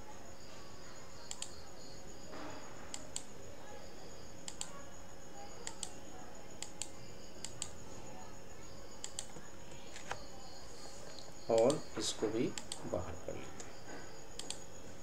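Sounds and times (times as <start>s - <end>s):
faint high whine and hum: 0.0s - 15.0s
computer mouse clicking: 1.3s - 1.6s, 2.9s - 3.3s, 4.4s - 4.7s, 5.6s - 6.0s, 6.6s - 7.8s, 9.0s - 10.2s, 11.1s - 11.8s, 12.5s - 12.9s, 14.4s - 14.6s.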